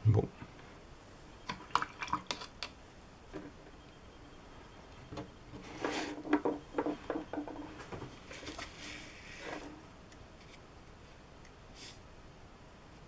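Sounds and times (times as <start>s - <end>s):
paper rustling: 7.8s - 9.8s.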